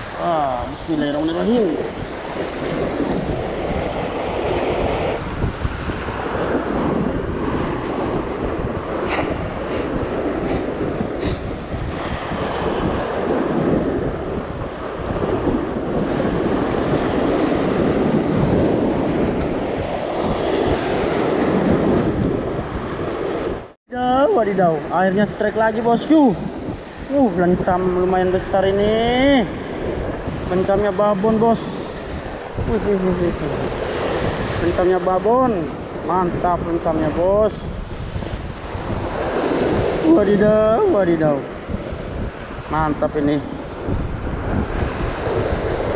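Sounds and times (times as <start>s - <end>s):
wind buffeting microphone: 0.0s - 45.9s
waves splashing against sea wall: 29.2s - 45.9s.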